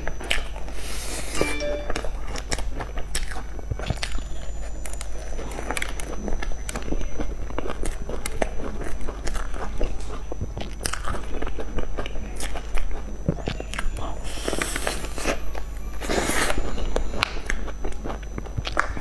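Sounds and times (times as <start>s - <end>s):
chewing close up: 2.9s - 19.0s
crunchy bite: 3.1s - 15.4s.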